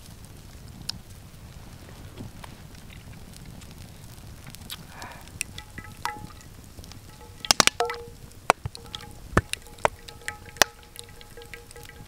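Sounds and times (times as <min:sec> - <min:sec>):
sharp crackles: 0:00.0 - 0:12.0
faint steady ringing tones: 0:05.4 - 0:12.0
oil pouring into metal pan: 0:05.4 - 0:12.0.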